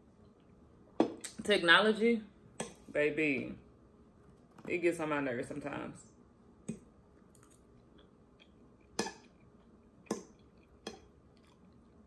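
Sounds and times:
chewing clicks and smacks: 6.7s - 12.0s.

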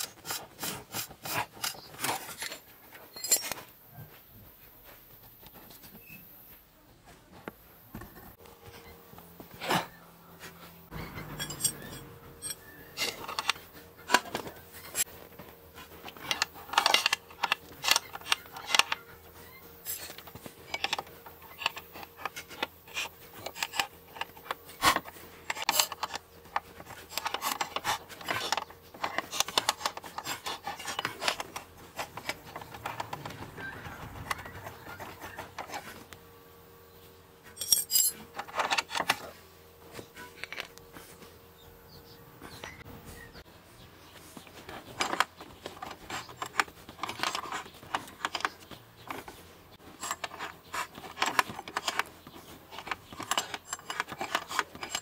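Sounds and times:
metal parts scraping: 0.0s - 3.6s, 10.9s - 36.0s, 37.5s - 39.3s, 44.4s - 55.0s
metal tools clinking: 2.2s - 3.7s, 10.9s - 15.1s, 19.8s - 26.2s, 37.5s - 39.2s, 52.7s - 55.0s.

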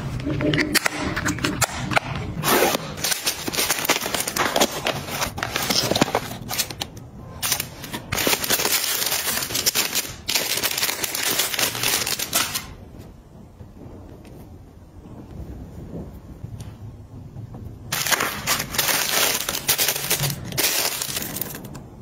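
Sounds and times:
plastic packaging crinkling: 2.1s - 12.8s, 17.9s - 22.0s.

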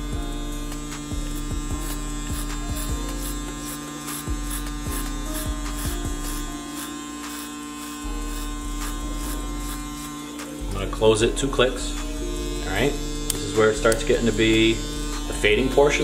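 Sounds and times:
hair clipper buzzing: 0.0s - 16.0s.

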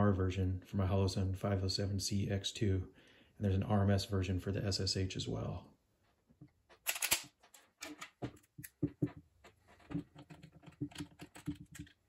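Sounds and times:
metal parts clicking and knocking: 6.7s - 12.0s.

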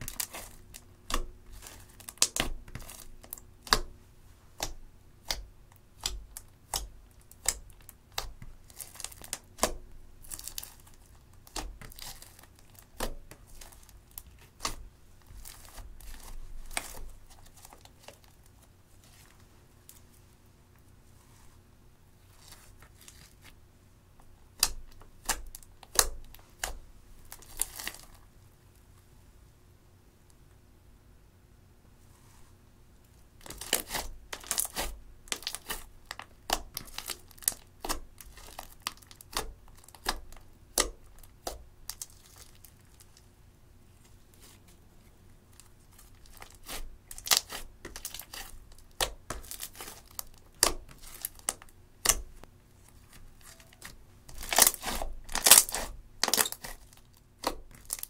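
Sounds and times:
slime popping and crackling: 4.6s - 18.3s, 33.4s - 43.0s, 45.9s - 52.4s, 53.4s - 58.0s.

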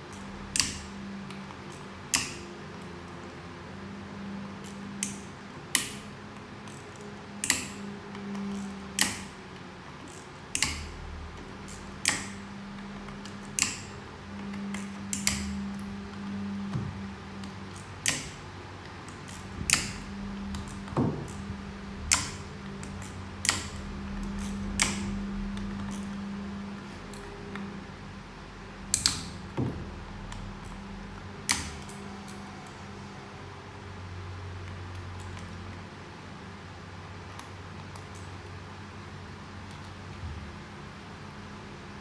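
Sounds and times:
low hum: 0.0s - 42.0s
metal parts clicking: 6.6s - 16.3s.

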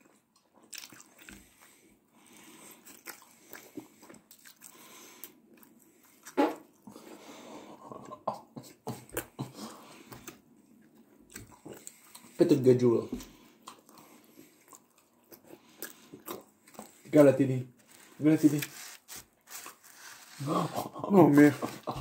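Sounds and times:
person chewing pizza: 0.0s - 22.0s
crust crunching: 17.8s - 22.0s.

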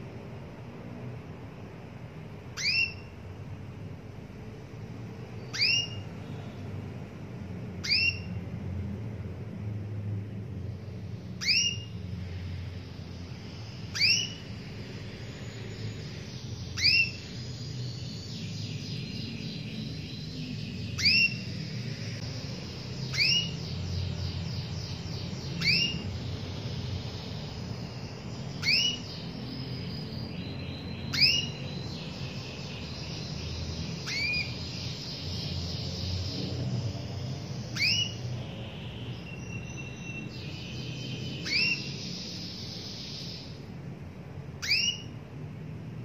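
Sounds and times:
canary fast trills: 1.2s - 9.5s, 10.2s - 45.3s
canary upslurred call notes: 2.6s - 3.1s, 5.5s - 6.0s, 7.8s - 8.3s, 11.4s - 11.9s, 13.9s - 14.4s, 23.1s - 23.6s, 28.6s - 29.2s, 34.0s - 34.5s, 37.8s - 38.2s, 41.4s - 41.9s, 44.6s - 45.1s.

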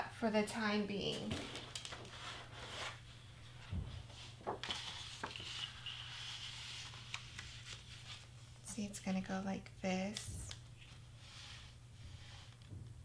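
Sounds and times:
low steady hum: 0.0s - 13.0s
cardstock rustling and scraping: 1.3s - 8.4s.

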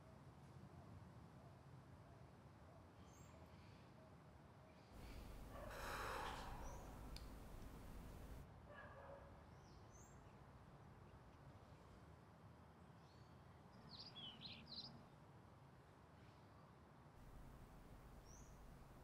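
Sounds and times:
faint high-pitched chirps: 5.0s - 8.4s, 17.3s - 19.0s.

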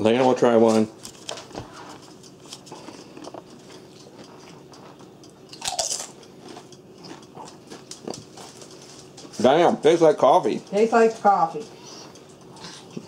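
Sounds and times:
chips crunching: 5.5s - 9.2s.

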